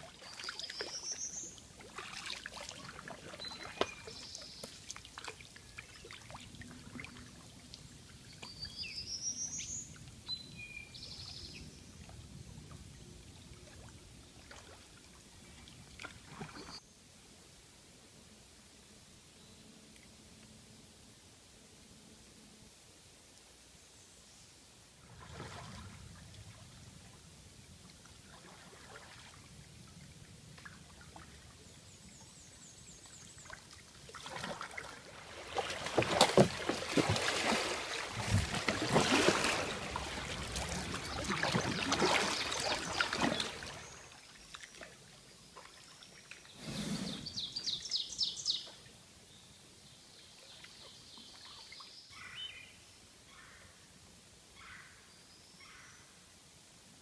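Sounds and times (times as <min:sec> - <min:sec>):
kayak paddle splashing: 0:00.0 - 0:07.6, 0:25.0 - 0:26.0, 0:28.2 - 0:29.5, 0:33.3 - 0:45.0
water washing at bow: 0:01.7 - 0:07.9, 0:33.4 - 0:44.9.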